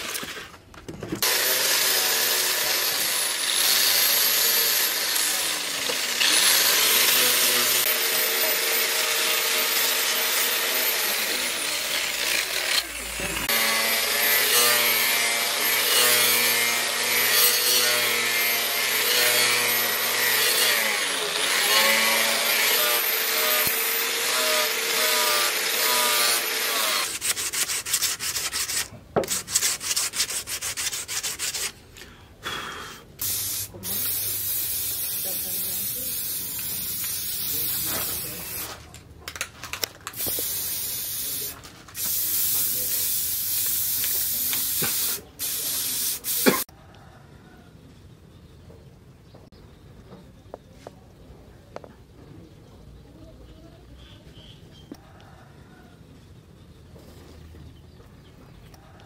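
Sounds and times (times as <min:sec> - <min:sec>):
angle grinder grinding steel: 0:01.2 - 0:28.8, 0:33.2 - 0:38.8, 0:40.2 - 0:46.7.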